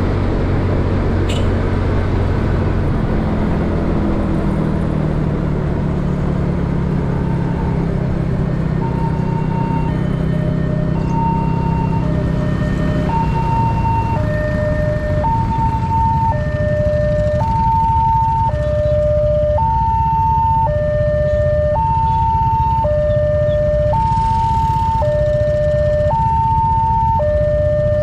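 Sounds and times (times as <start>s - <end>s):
road and engine rumble: 0.0s - 28.0s
two-tone siren: 1.2s - 1.6s, 6.5s - 28.0s.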